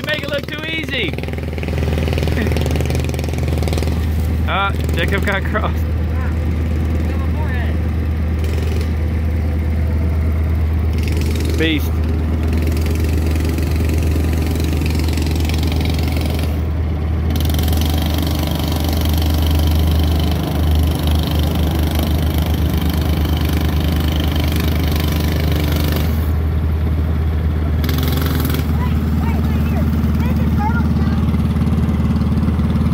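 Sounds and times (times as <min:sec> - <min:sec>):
small engine rumbling: 0:00.0 - 0:32.9.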